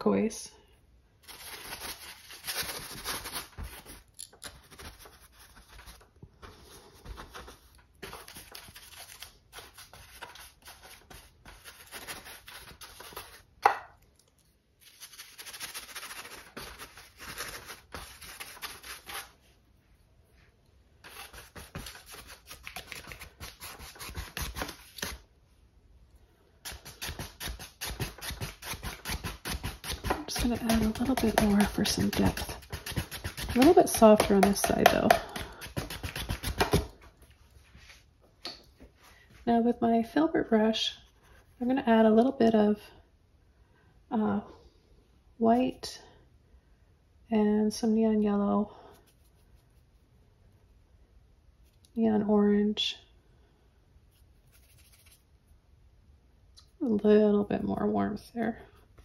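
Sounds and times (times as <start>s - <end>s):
paintbrush scrubbing on canvas: 26.7s - 34.8s, 54.1s - 55.4s.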